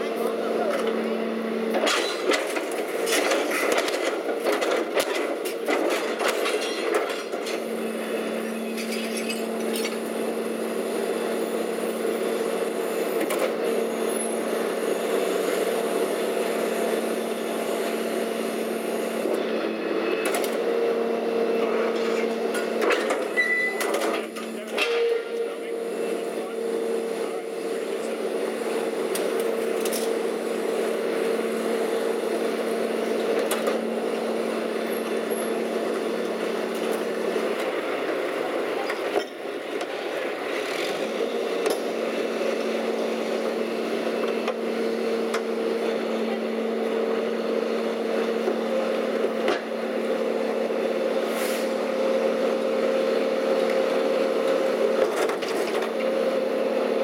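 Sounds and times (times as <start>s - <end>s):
debris clunking and scraping: 1.8s - 7.6s.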